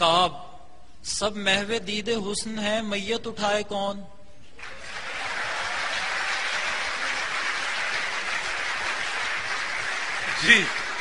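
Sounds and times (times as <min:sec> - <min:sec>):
audience applauding: 0:04.6 - 0:11.0.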